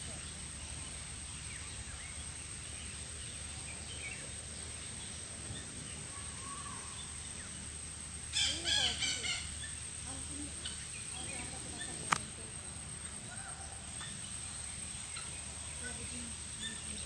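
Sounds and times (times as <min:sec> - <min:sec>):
outdoor background hiss: 0:00.0 - 0:17.0
small birds chirping faintly: 0:00.0 - 0:17.0.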